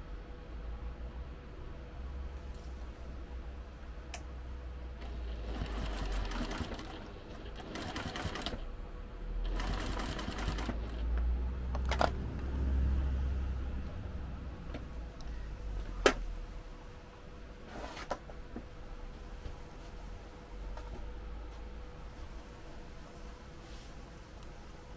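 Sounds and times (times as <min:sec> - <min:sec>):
sewing machine sewing: 0:05.0 - 0:08.7, 0:09.4 - 0:11.2.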